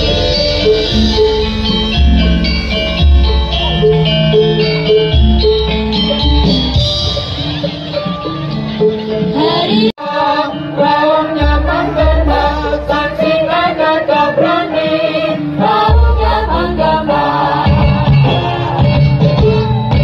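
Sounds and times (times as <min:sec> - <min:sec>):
chant-like singing: 0:09.4 - 0:18.8.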